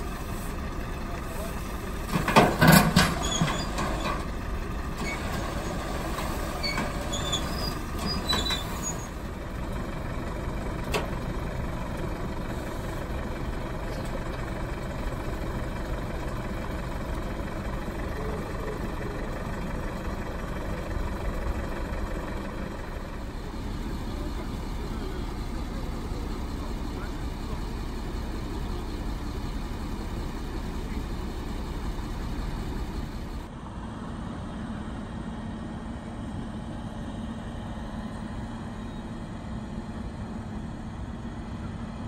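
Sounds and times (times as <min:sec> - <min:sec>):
street traffic: 0:00.0 - 0:42.0
truck engine idling: 0:00.0 - 0:42.0
faint high squeaks: 0:02.9 - 0:04.3, 0:06.2 - 0:09.2.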